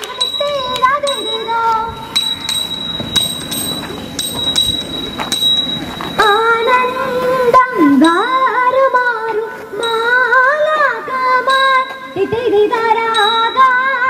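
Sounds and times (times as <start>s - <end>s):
steady high whine: 1.9s - 13.1s
woman singing slow held notes: 6.6s - 12.0s.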